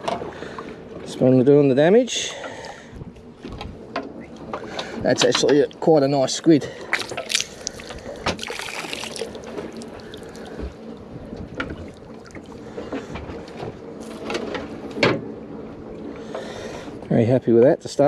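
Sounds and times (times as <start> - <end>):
wind: 0.0 - 18.0
water slapping boat hull: 6.7 - 13.8.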